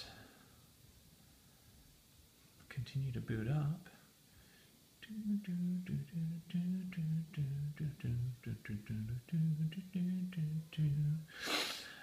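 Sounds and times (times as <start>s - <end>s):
man humming: 5.0s - 11.6s.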